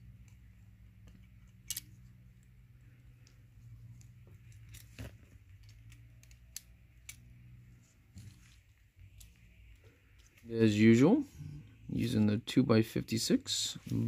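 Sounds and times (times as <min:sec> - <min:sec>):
steady low hum: 0:00.0 - 0:14.0
toy car parts clicking: 0:01.0 - 0:02.1, 0:04.4 - 0:07.3.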